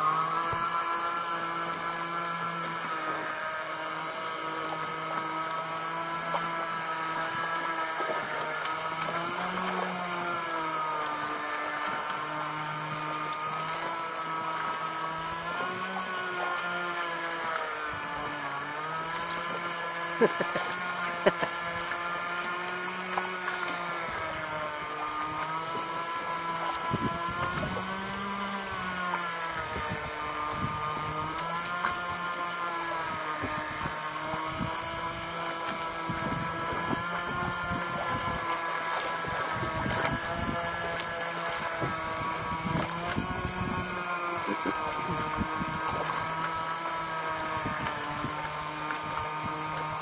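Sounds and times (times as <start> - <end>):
small boat engine running: 0.0 - 50.0.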